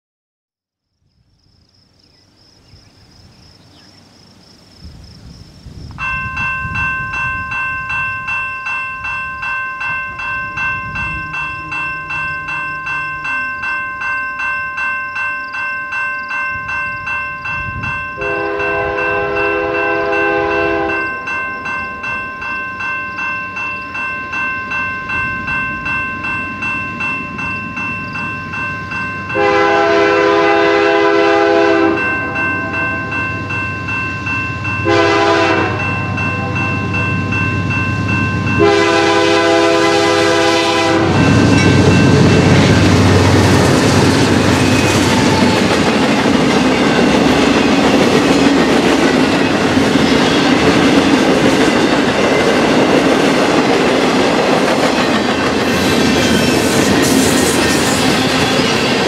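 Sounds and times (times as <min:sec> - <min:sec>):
low rumble of train: 0:01.6 - 0:59.0
railroad crossing bell dinging: 0:06.0 - 0:59.0
locomotive air horn: 0:18.2 - 0:21.1, 0:29.4 - 0:32.9, 0:34.8 - 0:36.9, 0:38.6 - 0:41.4.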